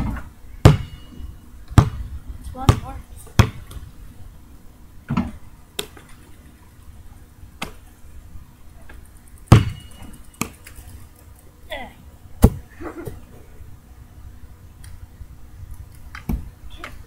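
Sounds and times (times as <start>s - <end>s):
basketball thudding: 0.0s - 1.1s, 1.7s - 3.8s, 9.5s - 10.6s, 12.4s - 13.2s.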